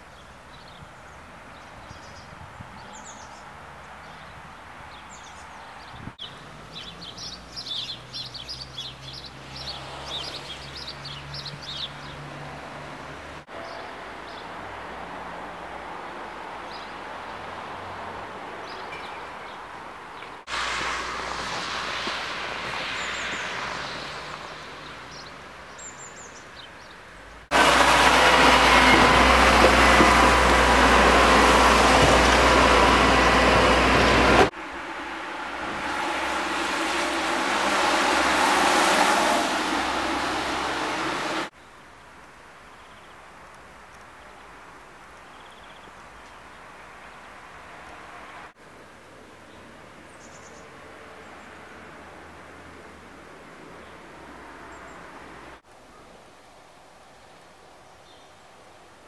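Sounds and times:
small birds chirping: 0.0 - 12.3, 22.8 - 27.4, 45.1 - 47.4
distant traffic hum: 0.0 - 59.0
loud steady rushing noise: 27.5 - 41.5.

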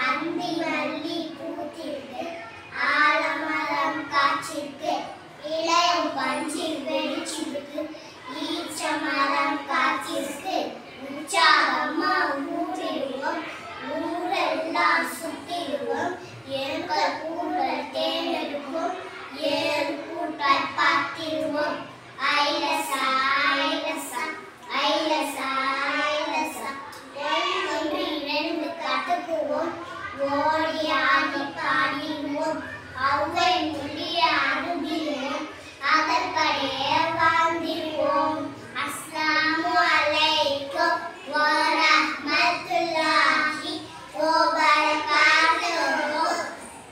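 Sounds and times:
children singing: 5.5 - 46.9
children singing in unison: 30.2 - 46.6.

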